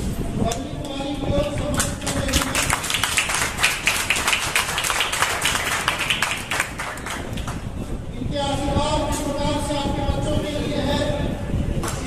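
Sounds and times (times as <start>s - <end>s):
group of people clapping: 0.5s - 7.7s.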